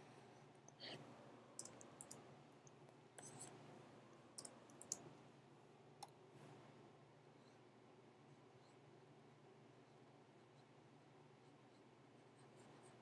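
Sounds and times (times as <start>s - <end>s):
low room hum: 0.0s - 13.0s
computer input clicks and taps: 1.6s - 2.2s, 4.4s - 5.0s.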